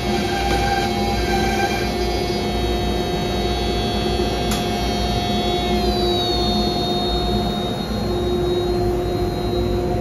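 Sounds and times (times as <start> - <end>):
router spindle whining cutting wood: 0.0 - 9.6.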